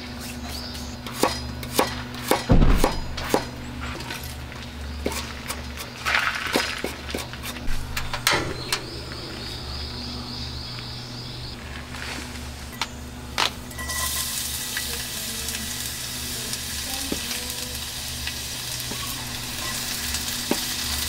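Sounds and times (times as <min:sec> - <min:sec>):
steady low hum: 0:00.0 - 0:21.0
heavy low thump: 0:02.5 - 0:03.5, 0:07.6 - 0:11.5.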